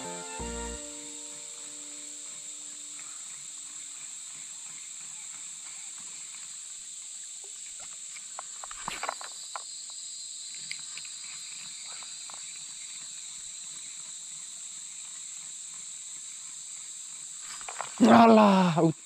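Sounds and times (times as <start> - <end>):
insects droning: 0.0 - 19.0.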